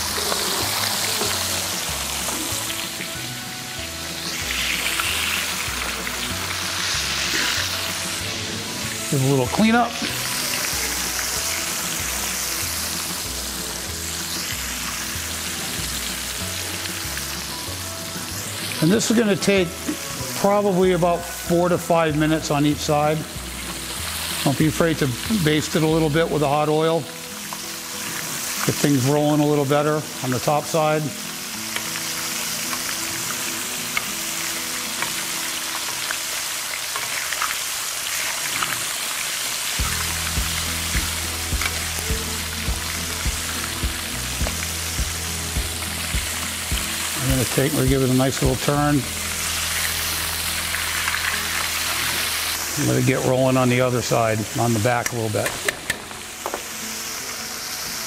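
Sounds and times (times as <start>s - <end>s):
background music bass line: 0.0s - 26.6s, 39.8s - 56.4s
fish deep-frying in oil: 0.0s - 58.0s
hot oil popping and crackling: 0.0s - 58.0s.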